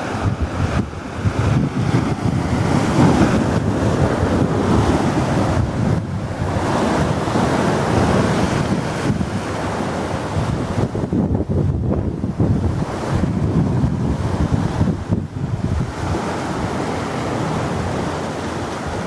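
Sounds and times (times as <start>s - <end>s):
waves breaking on rocks: 0.0s - 19.0s
wind buffeting microphone: 0.0s - 19.0s.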